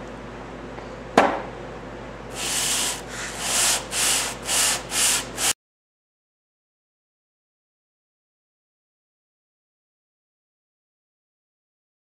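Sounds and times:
metal rasping on sandpaper: 0:02.4 - 0:05.6.

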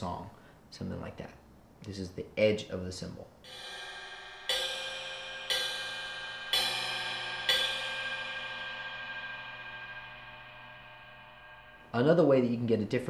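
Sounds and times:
cymbal struck with drumstick: 0:03.4 - 0:12.6.

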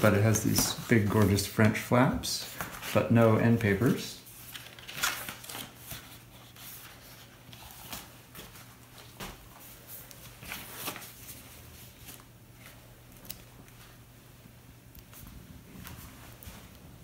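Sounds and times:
book pages rustling: 0:00.0 - 0:14.0, 0:15.0 - 0:17.0.

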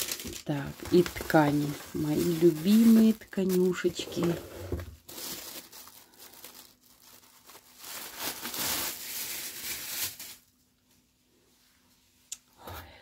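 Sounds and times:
plastic wrapping crinkling: 0:00.0 - 0:10.6.

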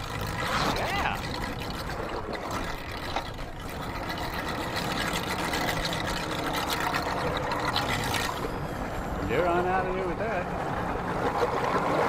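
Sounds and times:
outboard motor idling: 0:00.0 - 0:09.1.

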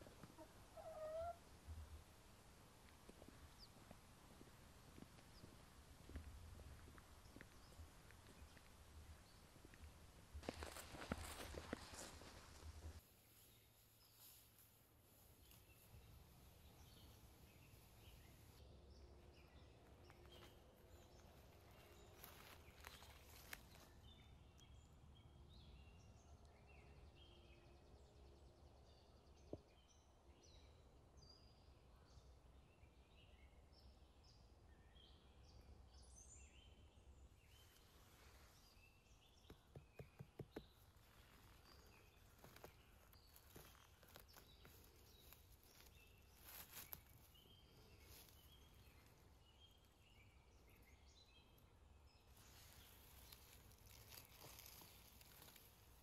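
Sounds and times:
dry leaves rustling: 0:09.2 - 0:18.6, 0:20.3 - 0:23.9, 0:41.0 - 0:49.3, 0:52.4 - 0:56.0.

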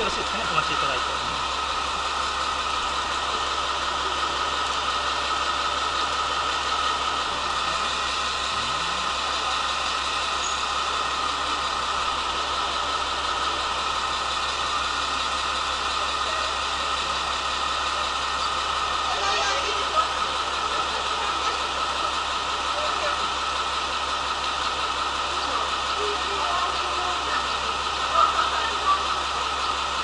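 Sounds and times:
diesel engine idling hum: 0:00.0 - 0:30.0.

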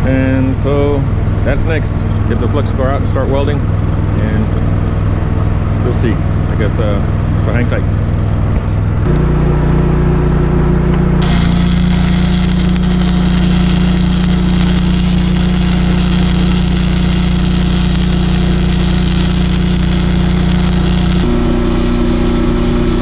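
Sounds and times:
steady engine hum: 0:00.0 - 0:23.0
welding arc crackling sizzle: 0:11.0 - 0:23.0.

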